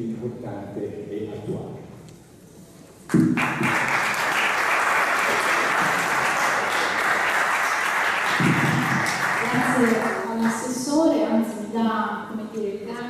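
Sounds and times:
audience applauding: 3.3s - 10.7s.

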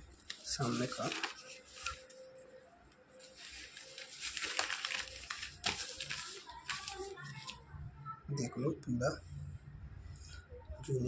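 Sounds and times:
paper rustling and crinkling: 0.1s - 2.5s, 3.1s - 7.6s.

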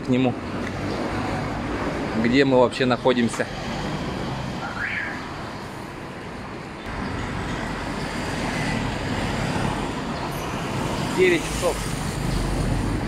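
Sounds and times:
busy street traffic: 0.0s - 13.0s.

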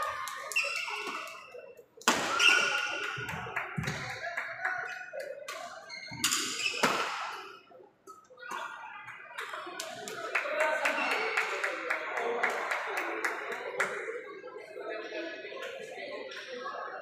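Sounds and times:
shoes squeaking: 0.5s - 1.6s, 2.3s - 3.1s, 5.8s - 7.0s
rackets striking shuttlecock: 5.5s - 8.8s.

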